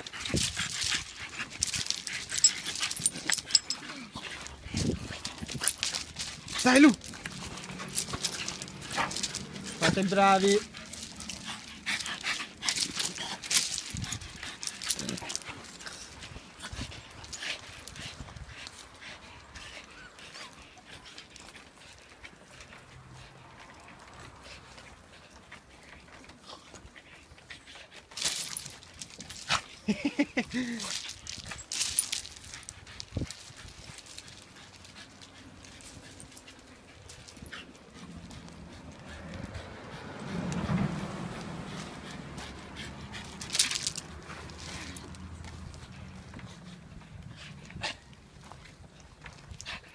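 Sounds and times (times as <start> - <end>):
dog paws on gravel: 0.0 - 18.8, 25.2 - 49.9
paws scuffing on gravel: 4.3 - 16.1.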